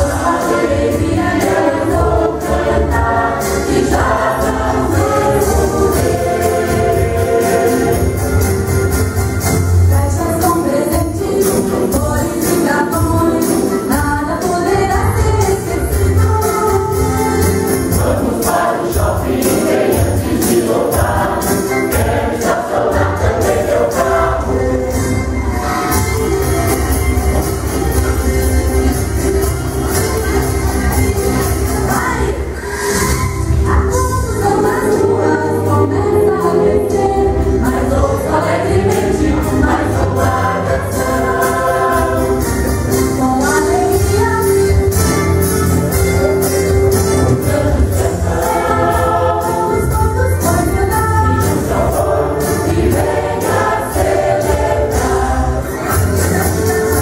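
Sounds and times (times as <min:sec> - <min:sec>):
choir singing: 0:00.0 - 0:14.0, 0:15.4 - 0:32.7, 0:34.4 - 0:44.5, 0:47.1 - 0:57.0
upbeat accompaniment with percussion: 0:00.0 - 0:57.0.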